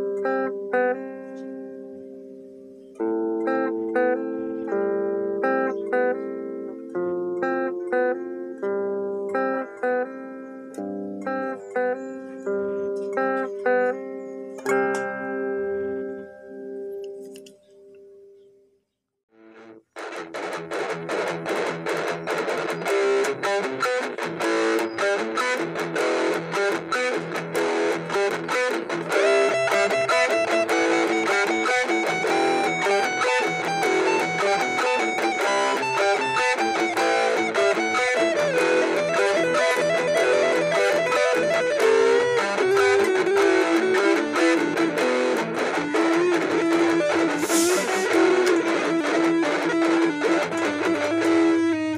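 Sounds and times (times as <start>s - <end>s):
distorted electric guitar lead: 0.0s - 2.3s, 2.9s - 17.2s, 19.4s - 51.9s
second electric guitar: 0.0s - 18.1s, 19.4s - 51.9s
burst of hiss: 47.3s - 48.1s.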